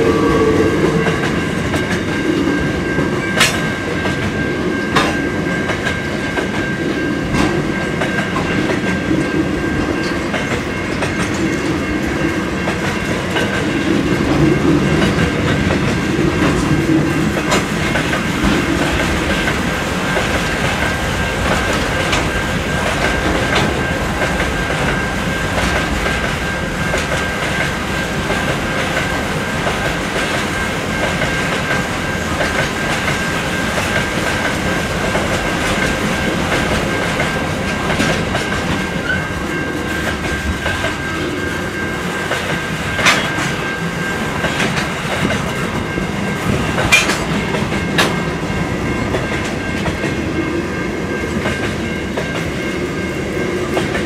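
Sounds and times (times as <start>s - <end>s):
thin high ring: 0.0s - 2.6s
train wheels rushing on rails: 0.0s - 54.0s.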